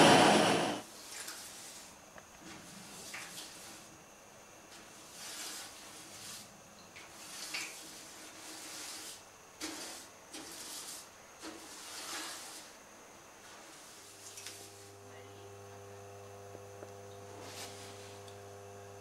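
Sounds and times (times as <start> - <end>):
brush scrubbing wet metal: 0.8 - 4.0, 4.7 - 12.8, 13.4 - 14.9, 17.4 - 18.3.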